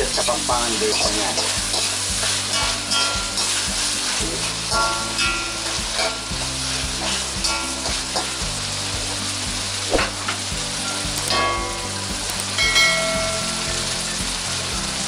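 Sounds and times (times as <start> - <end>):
food sizzling in hot oil: 0.0 - 15.0
metal spatula scraping wok: 0.2 - 8.5.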